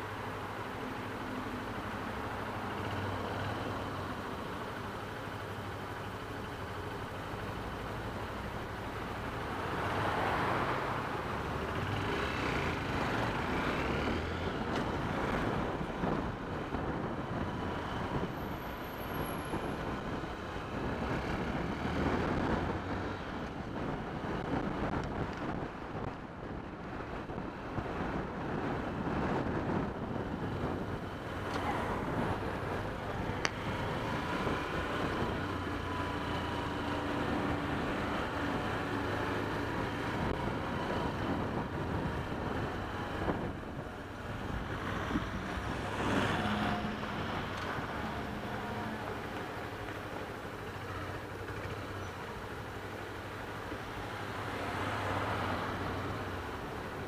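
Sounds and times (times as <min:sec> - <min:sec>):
street traffic noise: 0:00.0 - 0:57.0.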